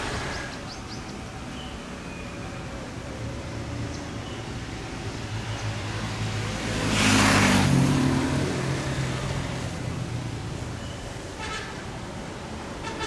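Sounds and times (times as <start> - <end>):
vehicle passing by: 2.9 - 10.7.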